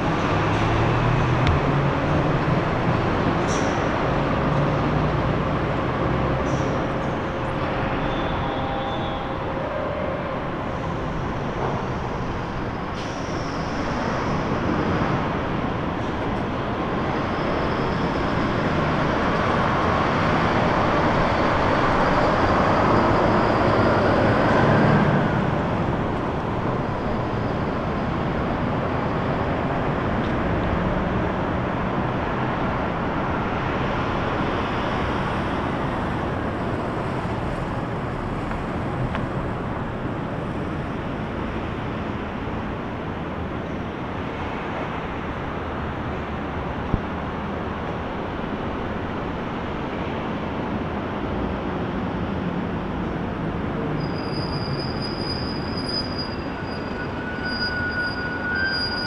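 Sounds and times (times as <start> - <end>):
passing vehicle whine: 0.0 - 59.0
traffic noise: 0.0 - 59.0.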